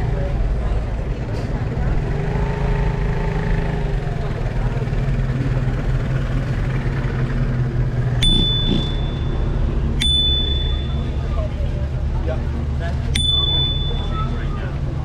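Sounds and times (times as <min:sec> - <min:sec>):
car engine running: 0:00.0 - 0:15.0
bicycle bell ringing: 0:08.2 - 0:11.3, 0:13.2 - 0:14.5.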